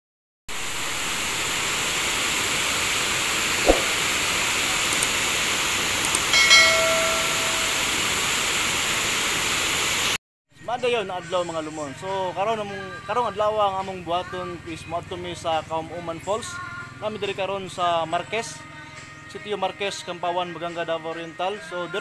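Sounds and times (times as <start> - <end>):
held high tone: 6.4 - 8.2.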